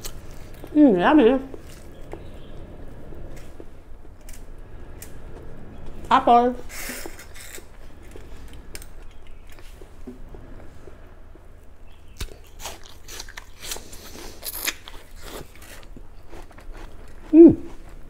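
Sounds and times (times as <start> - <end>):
apple crunching: 0.0 - 0.8, 12.1 - 18.0.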